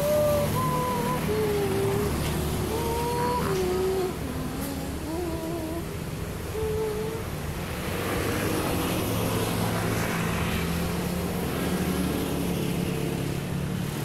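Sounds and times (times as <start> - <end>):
low engine drone: 0.0 - 7.8
broad rushing noise: 0.0 - 14.0.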